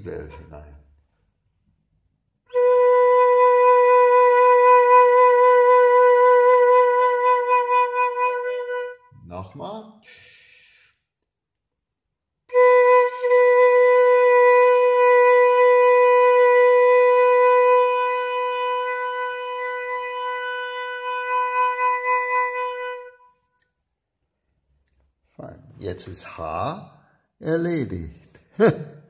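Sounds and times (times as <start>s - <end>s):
flute holding a long note: 2.5s - 9.1s, 12.5s - 23.4s.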